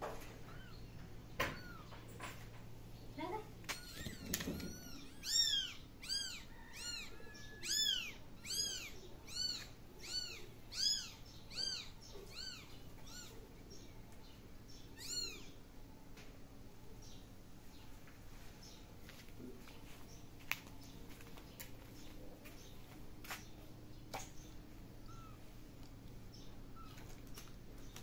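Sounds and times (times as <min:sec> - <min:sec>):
kitten meowing: 0:03.7 - 0:13.4, 0:15.0 - 0:15.5.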